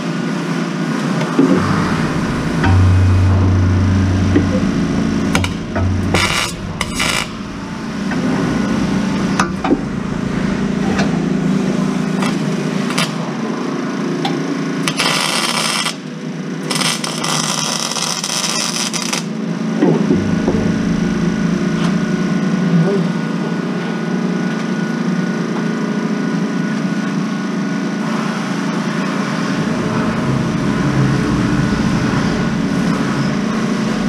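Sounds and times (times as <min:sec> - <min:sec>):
low machine hum: 0:00.9 - 0:14.6, 0:19.6 - 0:24.2, 0:28.0 - 0:34.0
knocks and clicks: 0:19.8 - 0:22.2.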